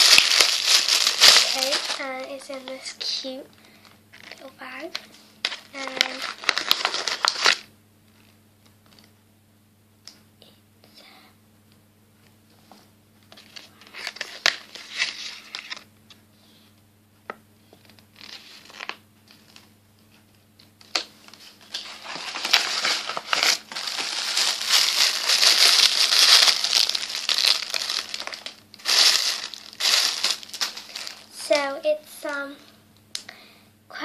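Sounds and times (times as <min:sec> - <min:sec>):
packaging bag crinkling: 0:00.0 - 0:02.9, 0:05.4 - 0:07.7, 0:20.9 - 0:31.7.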